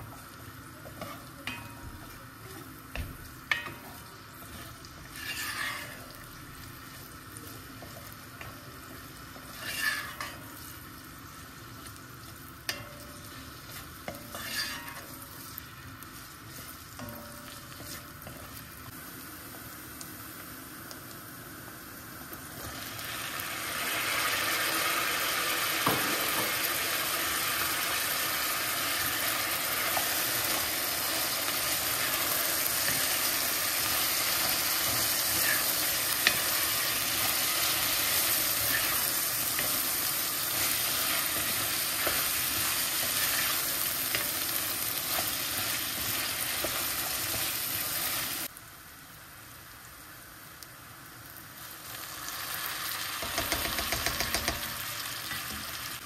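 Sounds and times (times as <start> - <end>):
vegetables sizzling in oil: 0.0 - 56.0
spoon clicking against pot: 53.3 - 54.6.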